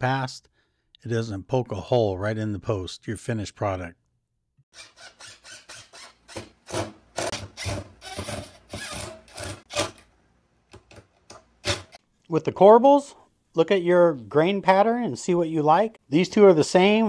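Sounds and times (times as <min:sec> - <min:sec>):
cordless drill driving screws: 0:04.7 - 0:10.0.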